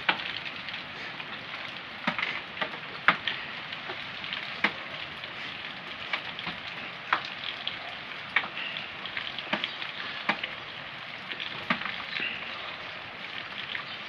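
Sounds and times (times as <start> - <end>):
rain hissing: 0.0 - 14.0
sharp ticks of drips: 0.0 - 14.0.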